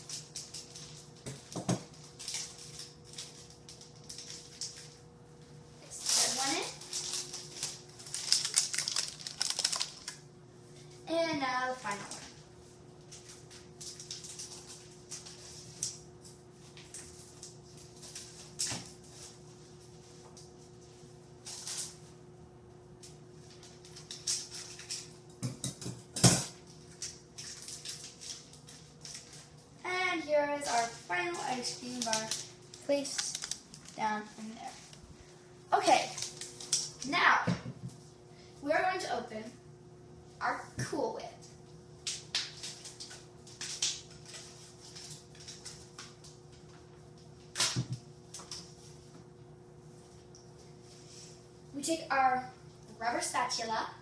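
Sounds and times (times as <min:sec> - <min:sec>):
wrapper and paper crinkling: 0:00.0 - 0:05.0, 0:05.9 - 0:10.2, 0:26.9 - 0:29.6, 0:30.6 - 0:35.0.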